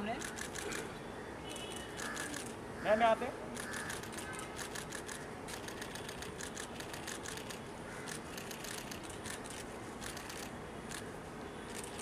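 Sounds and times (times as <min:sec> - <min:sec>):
camera shutters clicking: 0:00.2 - 0:00.9, 0:01.5 - 0:02.6, 0:03.5 - 0:11.1.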